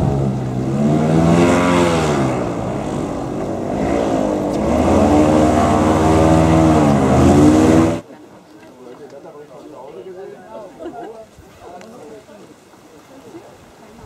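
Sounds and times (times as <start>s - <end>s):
airboat engine revving: 0.0s - 8.0s.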